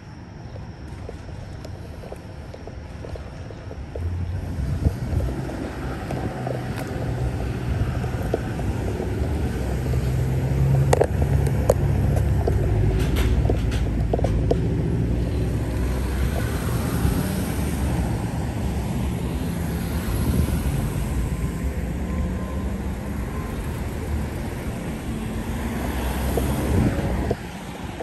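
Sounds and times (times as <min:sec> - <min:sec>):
traffic rumble: 0:00.0 - 0:28.0.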